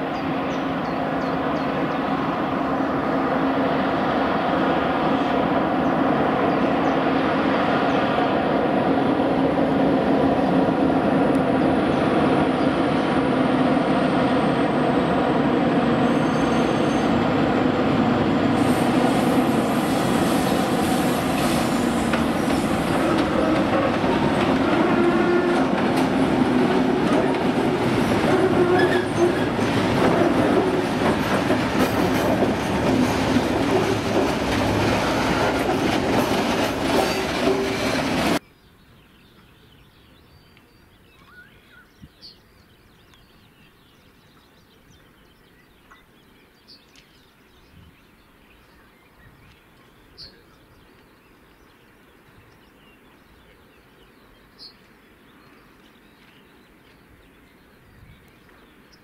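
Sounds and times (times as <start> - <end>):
diesel locomotive under load: 0.0 - 38.4
wagon wheels clattering and squealing: 26.9 - 38.4
bird chirps: 38.4 - 59.0.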